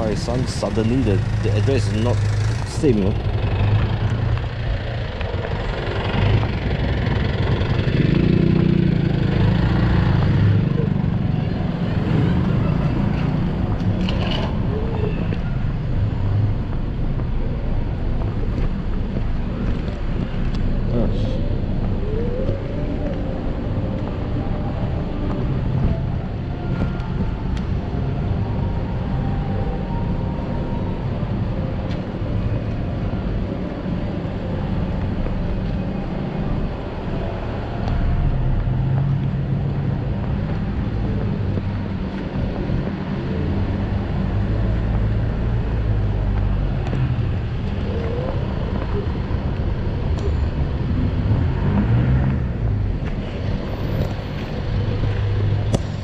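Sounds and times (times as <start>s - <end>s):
street traffic: 0.0s - 56.0s
wind rumble on microphone: 3.1s - 56.0s.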